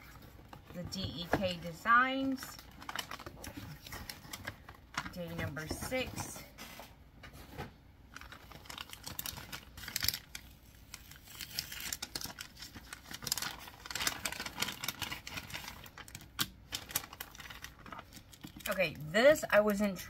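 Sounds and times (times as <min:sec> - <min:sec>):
plastic sleeve crackling: 0:00.0 - 0:06.4, 0:08.0 - 0:19.1
paper envelope rustling: 0:08.1 - 0:18.8.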